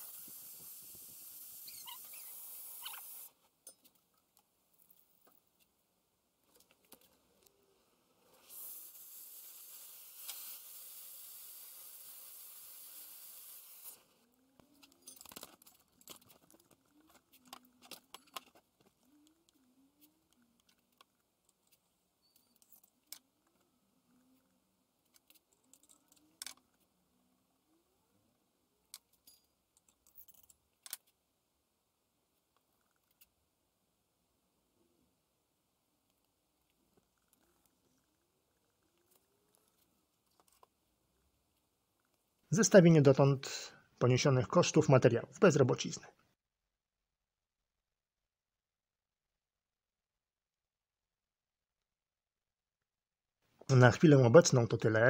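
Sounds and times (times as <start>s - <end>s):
hiss: 0.0s - 3.4s, 8.3s - 14.1s.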